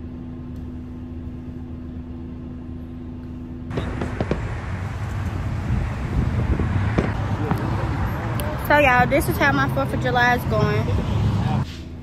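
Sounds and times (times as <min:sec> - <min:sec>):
outdoor rush of noise: 0:00.0 - 0:12.0
steady low hum: 0:00.0 - 0:12.0
sharp pops: 0:03.7 - 0:04.6, 0:06.9 - 0:07.7.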